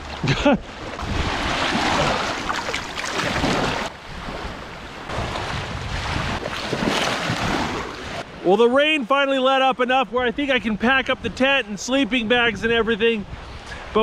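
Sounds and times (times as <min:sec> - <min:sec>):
small waves washing onto sand: 0:00.7 - 0:08.4
wind buffeting microphone: 0:01.0 - 0:08.2.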